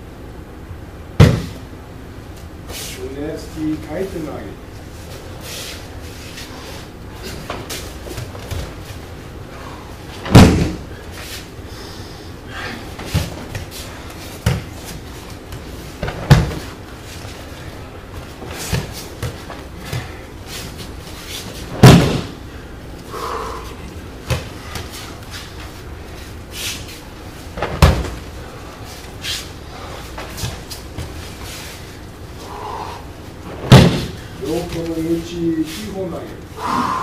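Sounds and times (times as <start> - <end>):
body thuds on padded mat: 1.2 - 1.6, 10.2 - 10.8, 16.0 - 16.8, 21.7 - 22.4, 27.5 - 28.2, 33.5 - 34.2
bare feet shuffling on mat: 33.5 - 36.4.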